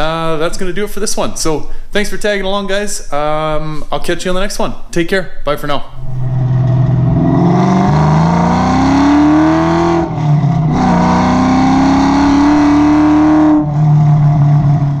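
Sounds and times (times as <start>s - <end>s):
car engine accelerating hard: 6.0s - 15.0s.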